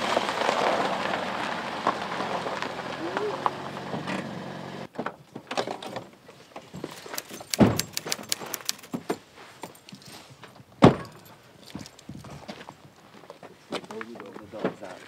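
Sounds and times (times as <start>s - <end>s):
car doors shutting: 3.8s - 5.0s
light metallic clicks and jingles: 6.6s - 12.8s.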